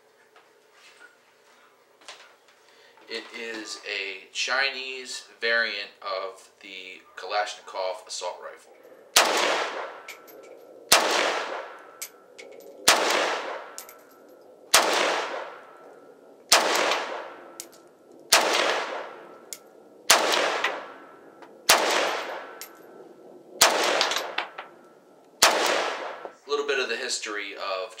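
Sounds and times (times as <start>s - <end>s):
rifle shots with long echo: 9.0s - 26.4s
light metallic clinks: 10.0s - 10.7s, 12.0s - 12.8s, 13.8s - 14.4s.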